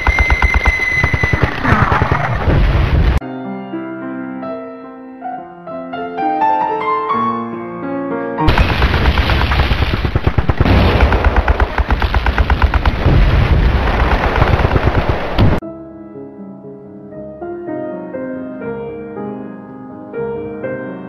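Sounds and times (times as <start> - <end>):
deep rumble: 0.0 - 3.2, 8.5 - 15.6
rapid rattling knocks: 0.0 - 3.2, 8.6 - 15.6
piano music: 3.2 - 8.6, 15.6 - 21.0.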